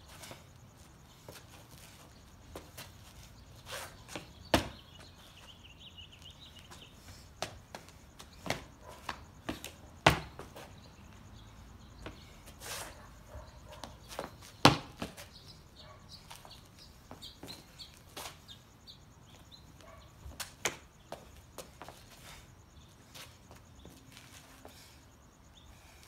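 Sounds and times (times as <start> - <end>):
sneaker scuffs on concrete: 0.1 - 18.6, 19.3 - 25.0
feet stamping: 1.2 - 5.6, 6.2 - 10.9, 13.7 - 15.4.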